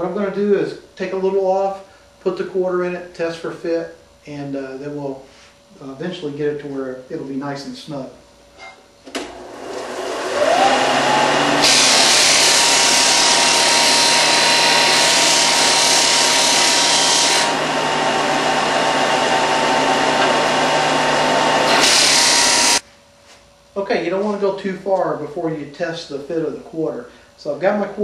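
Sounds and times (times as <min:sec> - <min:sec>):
disc sander motor whining: 0:09.2 - 0:22.8
wood being sanded: 0:09.8 - 0:22.8.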